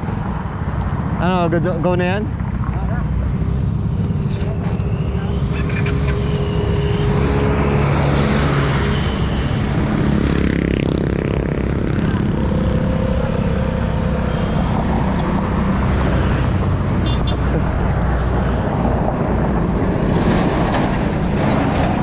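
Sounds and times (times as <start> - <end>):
road rumble: 0.0 - 22.0
scooter engine cruising: 2.3 - 19.7
wind noise: 3.3 - 22.0.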